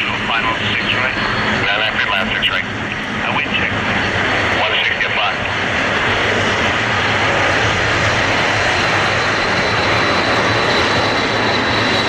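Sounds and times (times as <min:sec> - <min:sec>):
high jet whine: 0:00.0 - 0:12.0
jet airliner rumble: 0:00.0 - 0:12.0.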